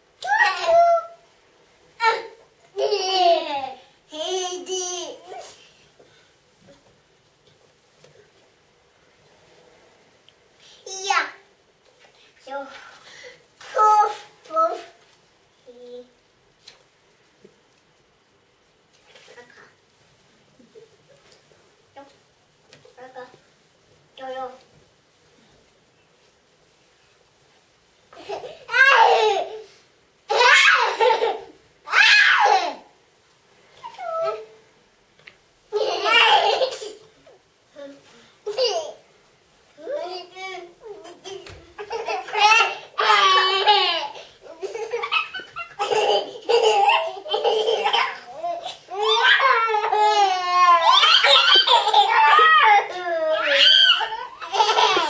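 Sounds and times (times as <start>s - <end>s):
toddlers laughing and squealing: 28.2s - 32.9s, 35.7s - 37.1s, 40.8s - 55.0s.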